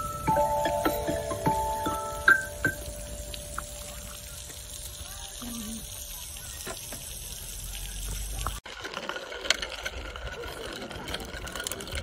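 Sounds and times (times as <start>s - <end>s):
steady hiss: 0.0s - 8.6s
small bike rolling over asphalt: 0.0s - 12.0s.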